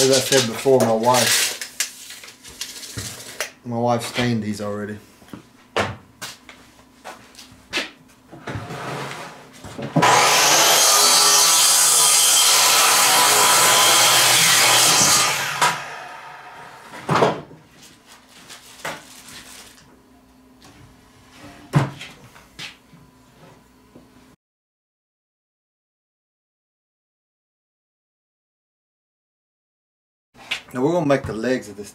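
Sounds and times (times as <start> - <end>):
power saw cutting wood: 10.0 - 17.0.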